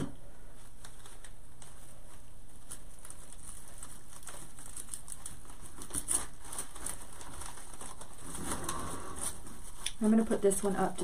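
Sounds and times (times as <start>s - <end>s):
artificial flowers rustling: 0.4s - 11.0s.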